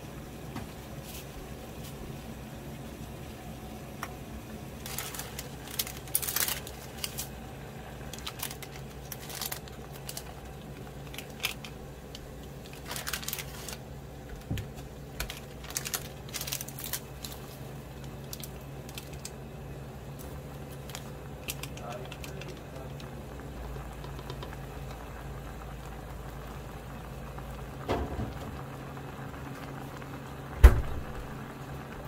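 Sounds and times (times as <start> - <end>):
steady low hum: 0.0 - 32.0
plastic sachets crinkling: 4.8 - 19.4, 20.1 - 24.6.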